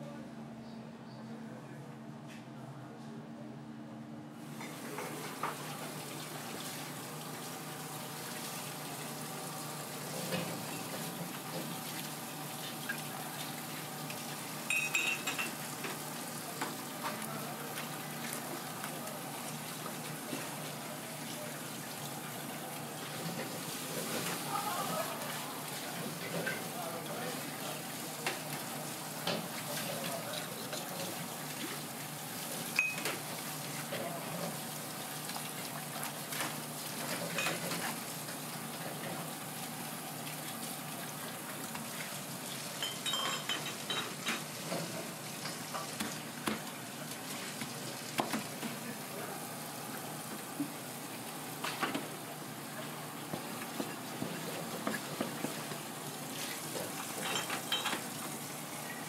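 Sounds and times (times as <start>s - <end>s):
knife and dishes clinking: 14.7s - 15.6s, 32.8s - 33.1s, 42.8s - 44.4s, 57.2s - 58.0s.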